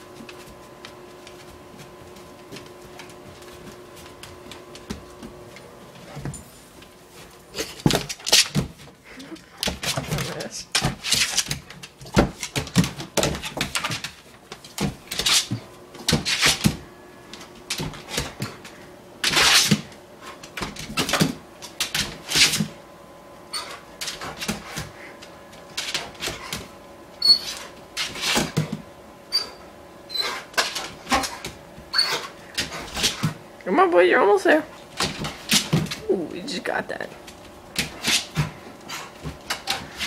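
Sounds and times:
dog claws scrabbling on wooden floor: 9.6s - 18.6s
short high squeaks: 27.2s - 27.6s, 29.3s - 30.4s, 31.9s - 32.2s.

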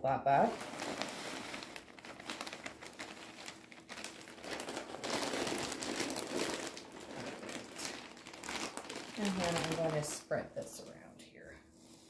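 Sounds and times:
plastic bag crinkling: 0.3s - 10.8s
soil pouring: 0.5s - 10.1s.

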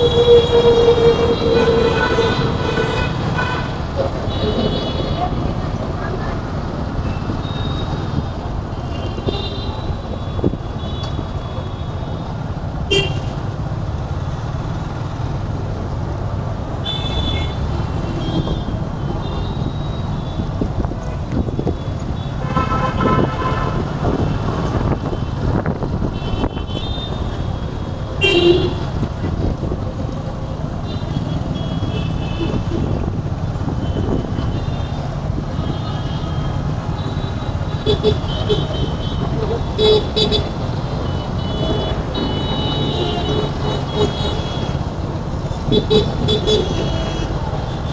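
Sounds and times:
vehicle horn toots: 0.0s - 5.1s, 21.8s - 23.9s, 28.2s - 28.9s
traffic rumble and road noise: 0.0s - 47.9s.

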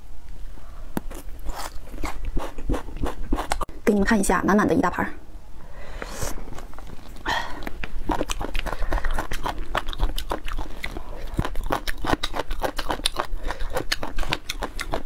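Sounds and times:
wet chewing and crunching: 1.0s - 3.7s, 6.5s - 15.0s.

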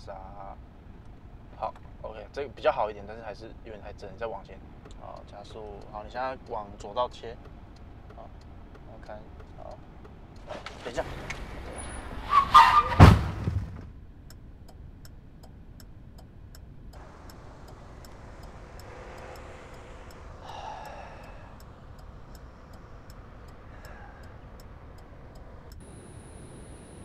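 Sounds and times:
faint ticking: 0.0s - 11.5s, 14.1s - 27.0s
car crash with heavy thuds: 10.5s - 13.9s.

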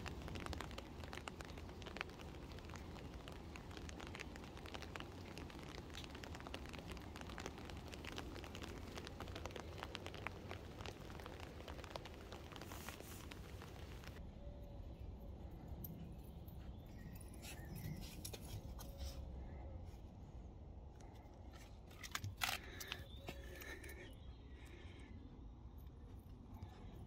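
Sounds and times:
rain pattering on foliage: 0.0s - 14.2s, 21.9s - 24.9s.

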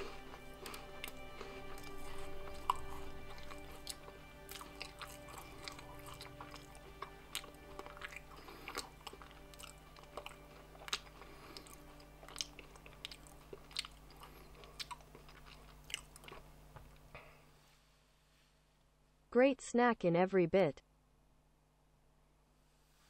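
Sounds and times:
wafer being chewed: 0.0s - 17.1s
faint background music: 0.0s - 17.6s.

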